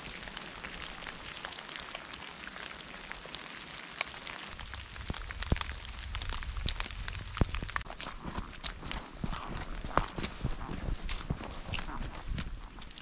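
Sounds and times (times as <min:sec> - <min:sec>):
light rain on wet leaves: 0:00.0 - 0:13.0
low rumble: 0:04.5 - 0:13.0.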